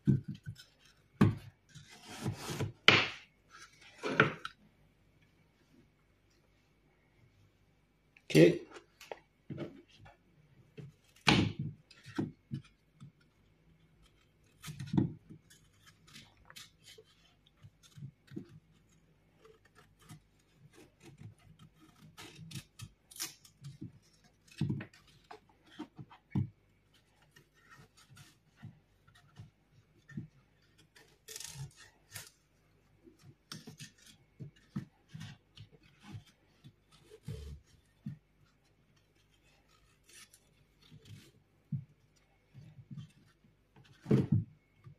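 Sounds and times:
knife cutting apple: 0.0 - 4.6, 10.8 - 32.5, 33.1 - 41.8.

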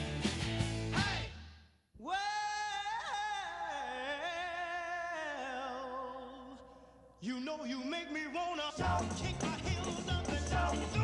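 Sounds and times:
person singing: 7.3 - 11.0.

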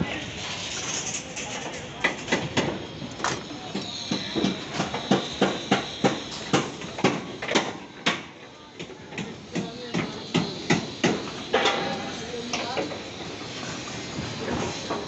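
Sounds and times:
sharp knocks and clanks: 2.0 - 12.9.

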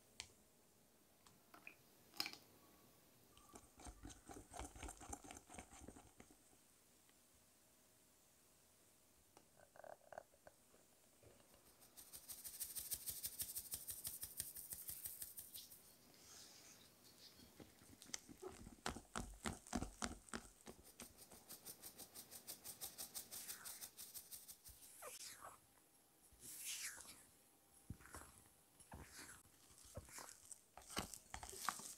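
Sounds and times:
whisk stirring cake batter: 3.6 - 6.5, 17.8 - 24.8, 28.9 - 31.9.

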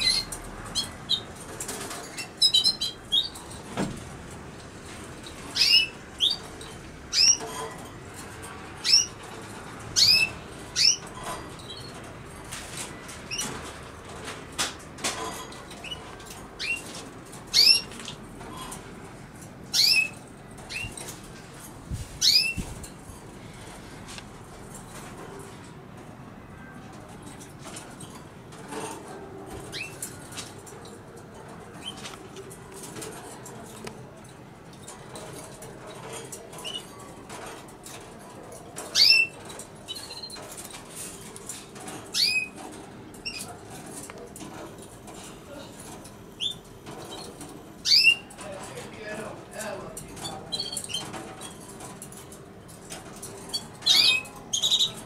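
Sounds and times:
bird chirping: 0.0 - 1.4, 2.1 - 3.5, 5.5 - 7.4, 10.0 - 11.9, 15.8 - 18.2, 19.7 - 21.1, 22.2 - 22.6, 42.1 - 42.6, 46.4 - 48.3, 53.5 - 55.0
low city background: 0.0 - 55.0.

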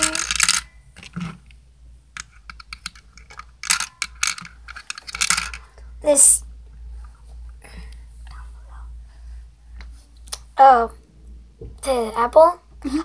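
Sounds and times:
plastic toy pieces clicking: 0.0 - 1.2, 2.2 - 5.6.

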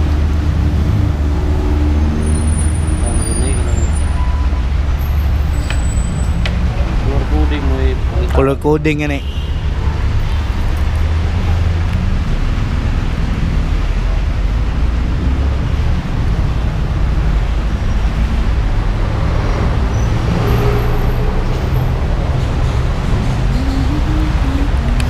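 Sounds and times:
traffic noise: 0.0 - 25.0
vehicle engines rumbling: 0.0 - 25.0.

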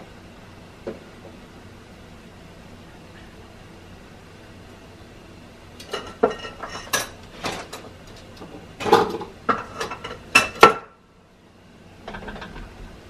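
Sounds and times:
dishes and utensils clinking: 5.8 - 8.2, 8.8 - 10.9.

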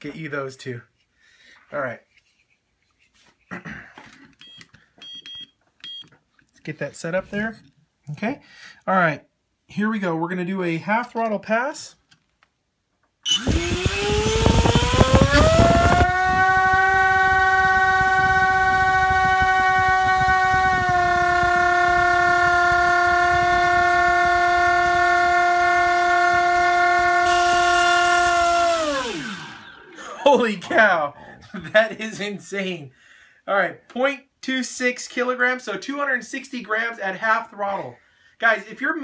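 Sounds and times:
electric motor whine: 13.3 - 30.0
propeller wash rushing: 13.4 - 26.0.

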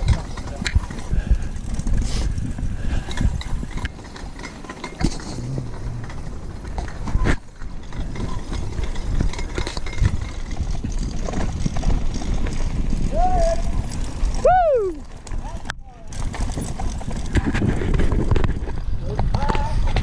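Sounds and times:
bike rattles and clicks: 0.0 - 20.0
bike tyres rolling over gravel: 0.0 - 20.0
low uneven rumble: 4.9 - 9.4.

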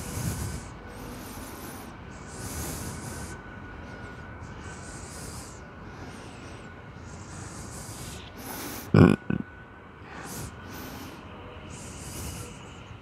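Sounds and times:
high hissing swells: 0.0 - 9.0, 10.0 - 13.0
steady hiss: 0.0 - 9.0, 10.1 - 13.0
faint steady high tone: 9.4 - 13.0.

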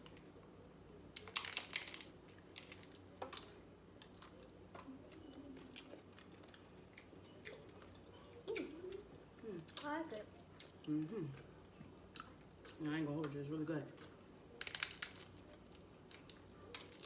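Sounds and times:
taco shells crunching: 0.0 - 8.7, 14.0 - 17.0.

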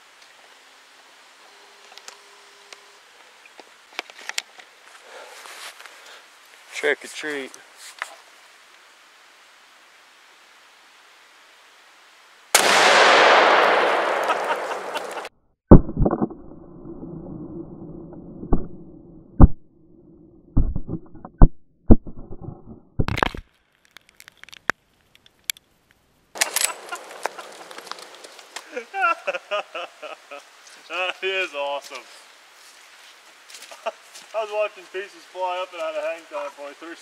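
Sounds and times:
rifle shot: 12.5 - 15.8
loud explosion blast: 12.6 - 16.0
sharp knocks and thumps: 20.6 - 23.4.

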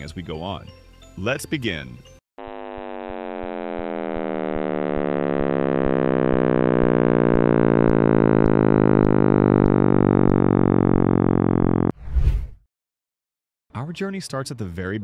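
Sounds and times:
synthetic drone sliding down: 2.4 - 12.4.

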